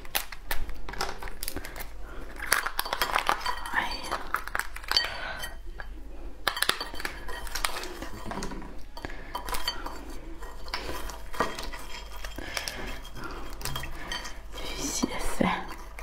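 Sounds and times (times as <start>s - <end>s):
crab shell cracking: 0.0s - 5.4s.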